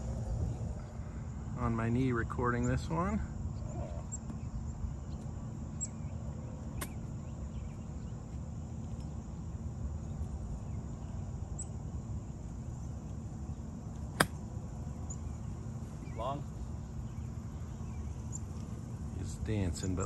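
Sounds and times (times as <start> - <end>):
golf club striking ball: 14.2 - 14.4.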